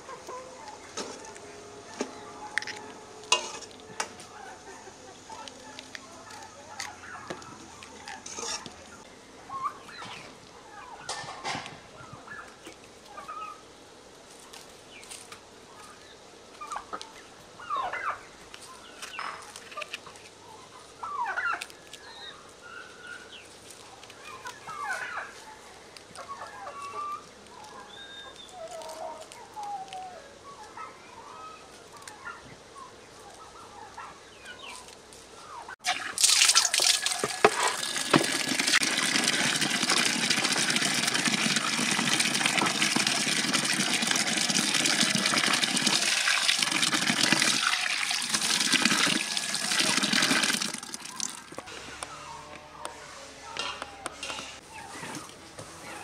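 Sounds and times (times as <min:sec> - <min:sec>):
poultry clucking: 0:00.0 - 0:11.5, 0:17.6 - 0:18.3, 0:24.2 - 0:25.6, 0:26.2 - 0:29.4
running water: 0:35.8 - 0:51.7.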